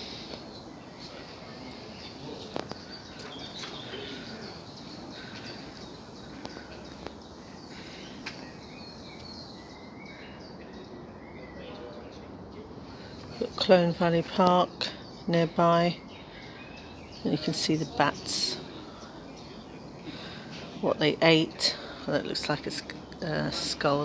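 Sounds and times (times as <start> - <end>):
faint bird chirps: 0.0 - 14.0
steady background noise: 0.0 - 24.0.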